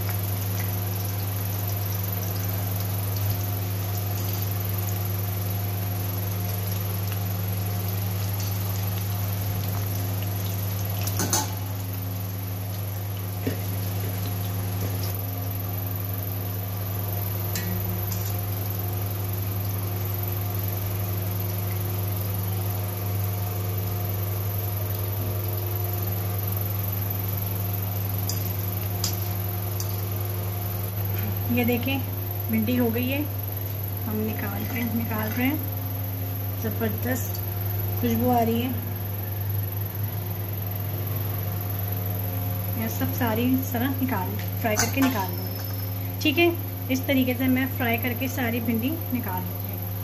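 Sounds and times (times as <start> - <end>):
food sizzling in hot oil: 0.0 - 50.0
steady low hum: 0.0 - 50.0.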